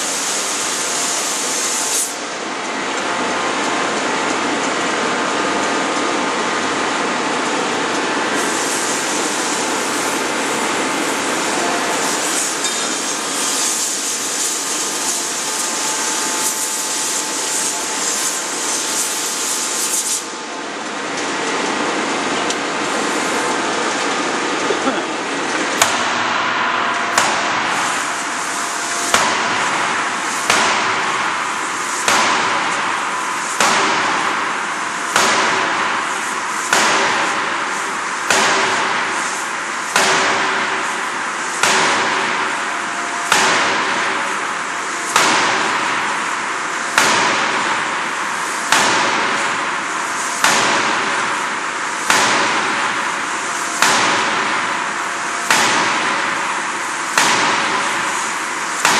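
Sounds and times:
forging hammer striking metal: 25.7 - 32.7, 33.5 - 34.3, 35.1 - 36.0, 38.3 - 39.1, 39.9 - 40.6, 41.6 - 42.4, 43.2 - 44.2, 45.1 - 45.8, 46.9 - 47.6, 48.7 - 49.4, 50.4 - 51.2, 52.0 - 52.8, 53.8 - 54.6, 55.4 - 56.2, 57.1 - 58.2.

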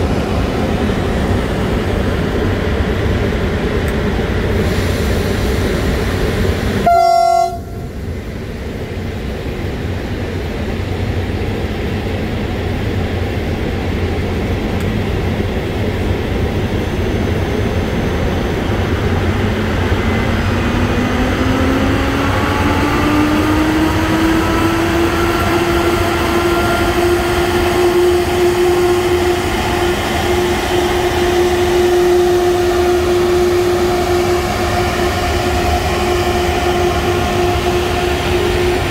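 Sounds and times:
machinery rumble: 0.0 - 38.9
rising locomotive whine: 0.0 - 38.9
locomotive horn blast: 6.8 - 8.0, 25.4 - 38.9.

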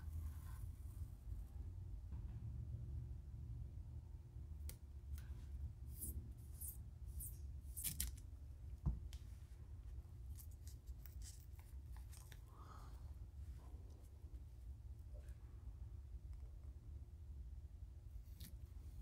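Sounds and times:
tape peeling and rustling: 5.9 - 8.3, 10.2 - 12.5.

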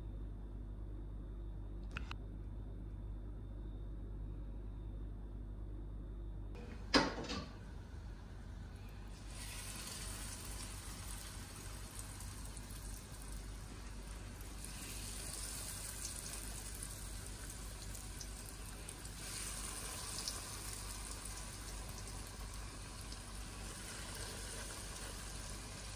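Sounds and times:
cutlets sizzling in hot oil: 9.1 - 25.9.

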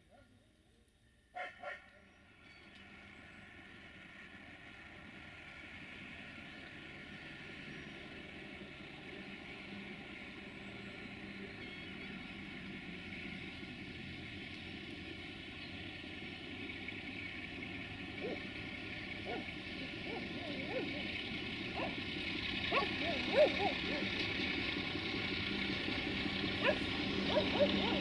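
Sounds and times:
diesel locomotive engine hum: 0.0 - 28.0
dog barking: 1.4 - 1.9, 18.2 - 18.4, 19.2 - 21.0, 21.8 - 22.0, 22.7 - 24.1, 26.6 - 28.0.

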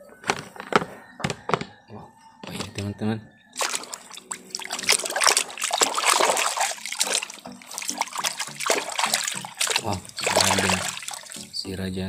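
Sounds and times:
water sloshing and splashing: 2.4 - 2.9, 3.5 - 11.6.

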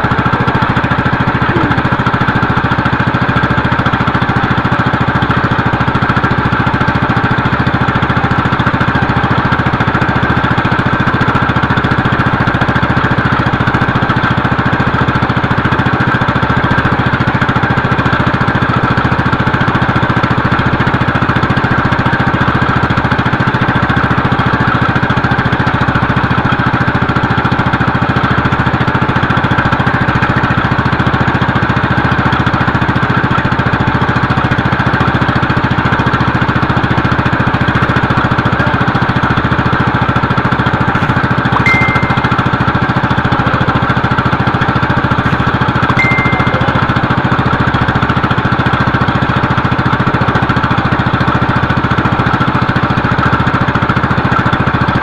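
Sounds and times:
small boat engine idling: 0.0 - 55.0
short high chirps: 41.6 - 43.1, 46.0 - 47.3.

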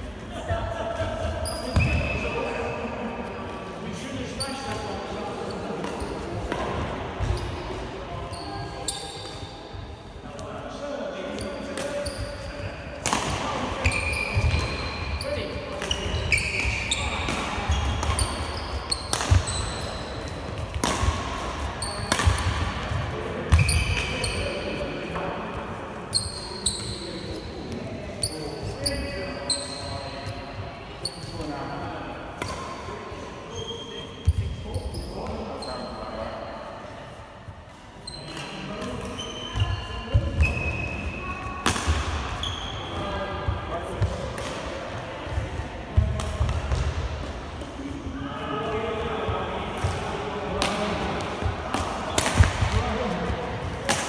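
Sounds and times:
shoes squeaking on court: 1.2 - 2.7, 4.4 - 9.6, 11.2 - 12.8, 13.7 - 24.6, 26.1 - 31.5, 33.5 - 36.0, 38.0 - 43.1
racquets striking shuttlecock: 13.0 - 13.6, 15.7 - 24.2, 50.6 - 52.9.

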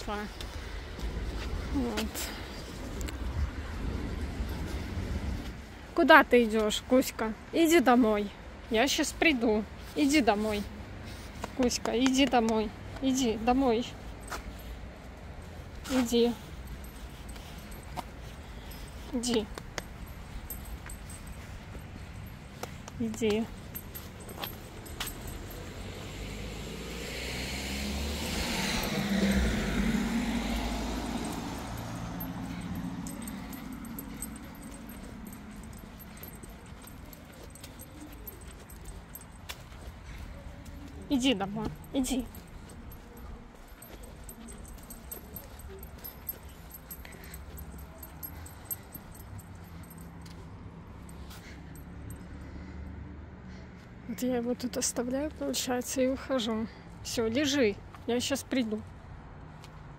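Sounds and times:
faint metallic jingling: 13.0 - 52.8
van driving past: 24.4 - 34.2.

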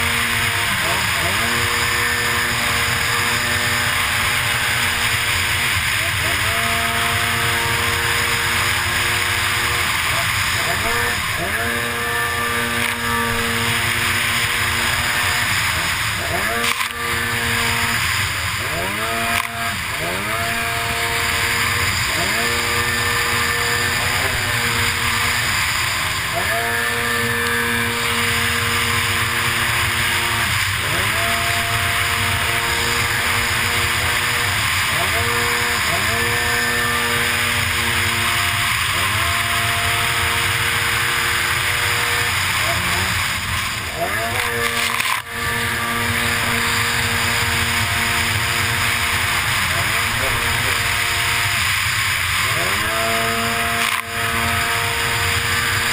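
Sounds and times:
jet ski engine at high revs: 0.0 - 55.9
rush of wind and water spray: 12.5 - 55.9.

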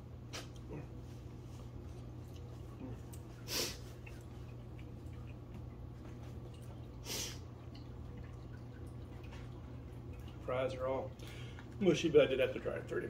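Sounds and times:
low steady hum: 0.0 - 13.0
man sniffing: 3.5 - 3.8.

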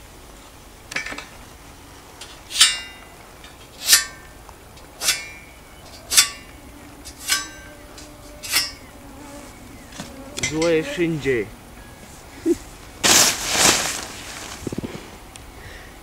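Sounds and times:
ringing metallic strikes: 5.0 - 8.9.

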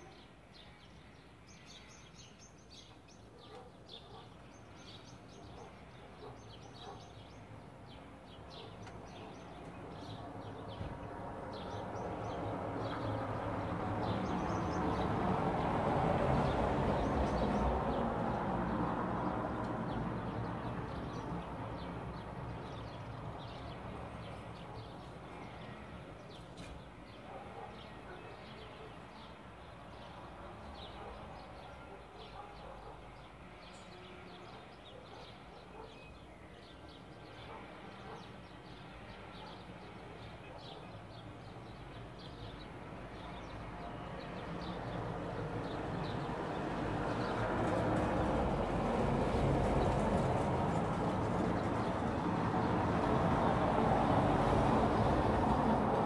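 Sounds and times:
small birds chirping: 0.0 - 15.2.

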